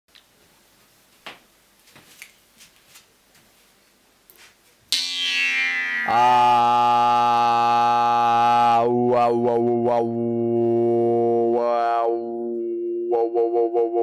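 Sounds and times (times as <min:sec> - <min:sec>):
jew's harp twanging: 0:05.0 - 0:08.4.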